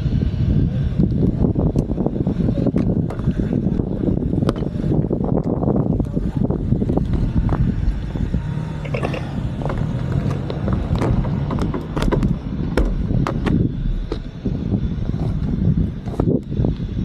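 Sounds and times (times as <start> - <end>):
bicycle tyre rumble on tarmac: 0.0 - 17.0
wind buffeting microphone: 0.0 - 17.0
sharp clicks and rattles: 8.8 - 16.9.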